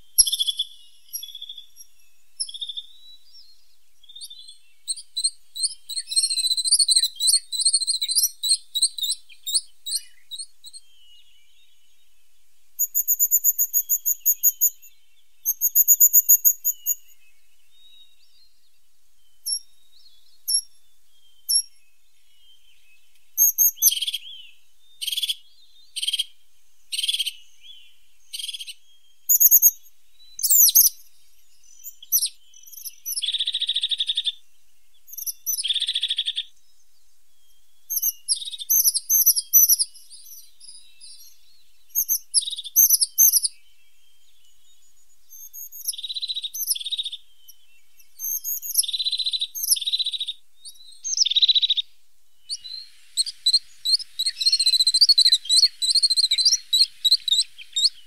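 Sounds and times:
buzzy bird trills: 52.6 - 58.0.

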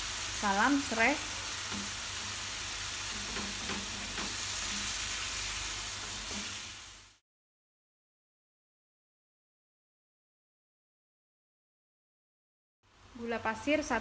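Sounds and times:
paste sizzling in oil: 0.0 - 7.2
wooden spatula scraping: 1.5 - 6.9.

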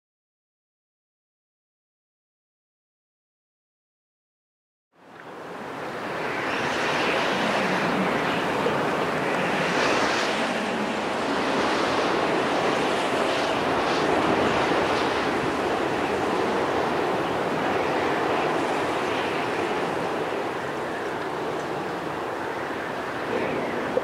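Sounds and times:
rushing wind: 5.0 - 24.0.

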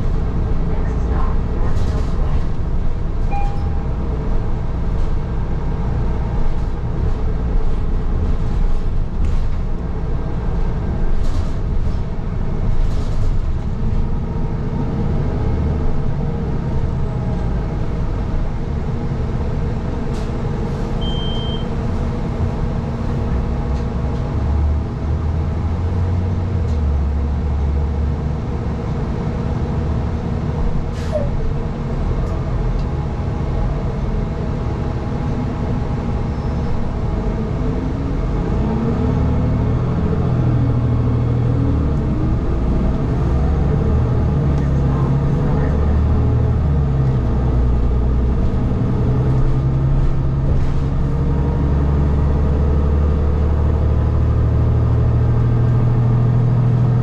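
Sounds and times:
bus engine and road rumble: 0.0 - 57.0
short high beep: 3.3 - 3.8, 21.0 - 21.7.

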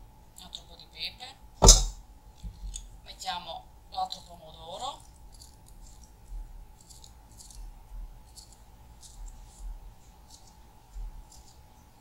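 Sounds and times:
knife slicing tomato: 1.6 - 2.0.

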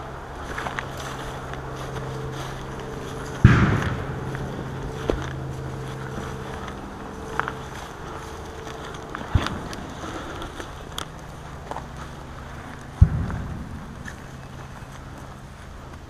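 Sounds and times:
footsteps on dry leaves: 0.0 - 16.0
low engine drone: 0.0 - 16.0.

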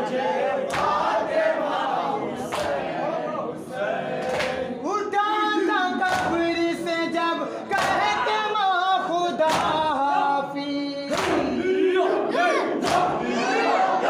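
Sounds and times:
men chanting in unison: 0.0 - 14.0
hands slapping chests: 7.8 - 8.1, 9.5 - 9.9, 11.1 - 11.6, 12.8 - 13.2.

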